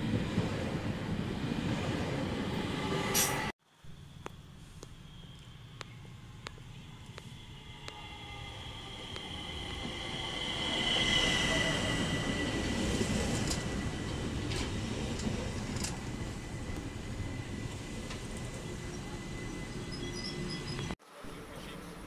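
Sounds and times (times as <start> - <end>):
electric train whine: 0.0 - 22.0
wheels rumbling on rails: 4.0 - 21.0.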